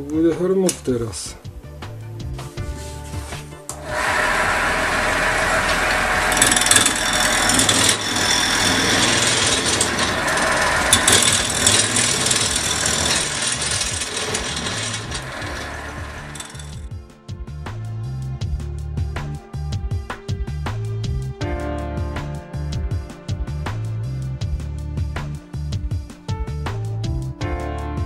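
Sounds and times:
wood lathe gouge rattling cut: 0:03.7 - 0:16.9.

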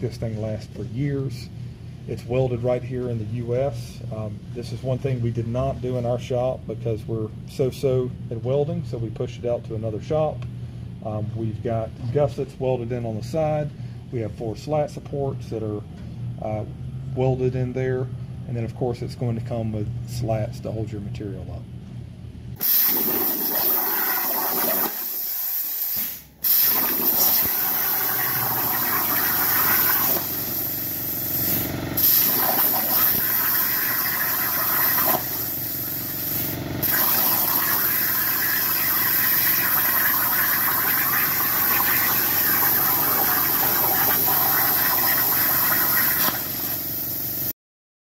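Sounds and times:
plasma torch hissing: 0:22.6 - 0:47.5.

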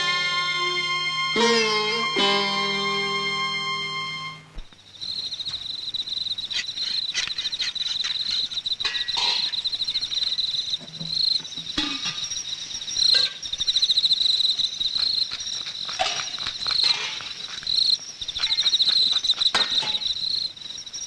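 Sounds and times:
held music note: 0:00.0 - 0:04.5
crickets chirping: 0:00.0 - 0:21.0
scattered knocks and clinks: 0:15.0 - 0:17.7.

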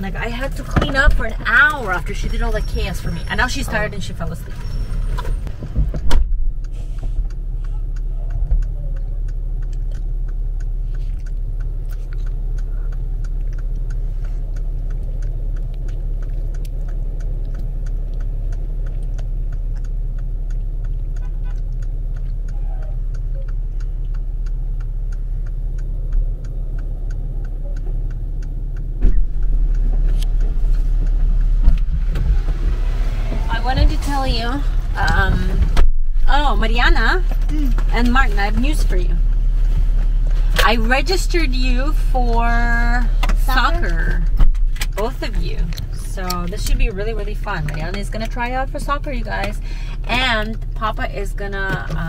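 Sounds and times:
car engine idling: 0:00.0 - 0:52.0
indicator ticking: 0:00.0 - 0:52.0
thump: 0:05.7 - 0:06.5.

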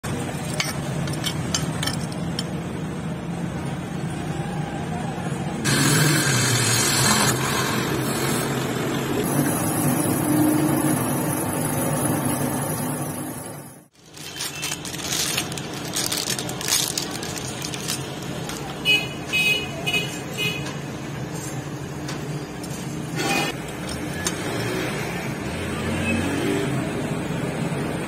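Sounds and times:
steady machine tone: 0:09.2 - 0:13.8.

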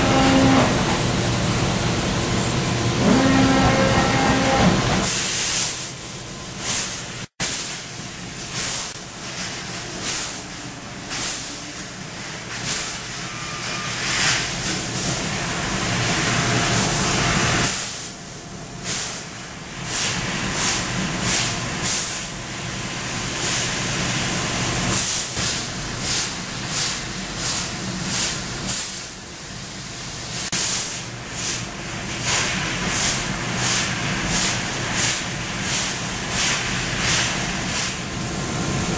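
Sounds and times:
laser cutter gas jet hissing: 0:00.0 - 0:22.7.

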